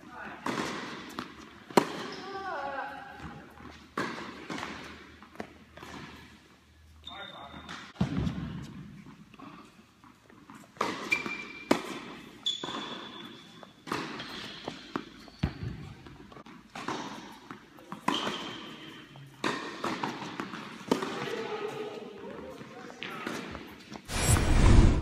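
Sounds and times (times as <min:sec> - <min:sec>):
tennis balls struck and bouncing: 0:00.4 - 0:02.1, 0:04.0 - 0:06.1, 0:13.8 - 0:15.8, 0:19.4 - 0:21.2.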